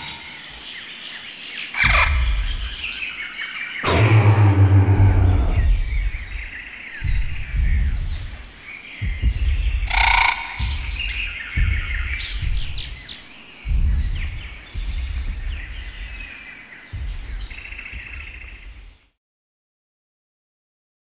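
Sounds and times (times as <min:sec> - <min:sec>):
small birds chirping: 0:00.0 - 0:19.1
deep low thud: 0:01.8 - 0:03.0, 0:03.8 - 0:18.9.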